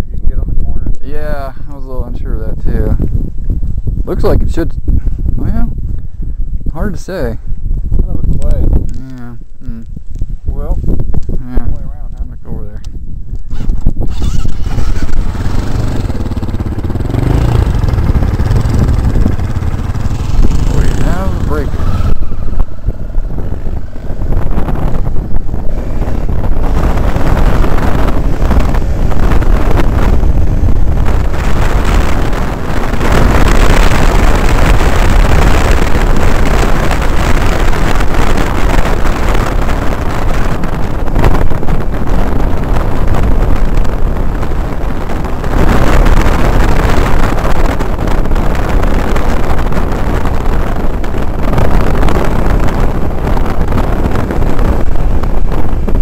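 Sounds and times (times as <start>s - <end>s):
wind rushing over microphone: 0.0s - 56.0s
motorcycle engine running: 13.4s - 56.0s.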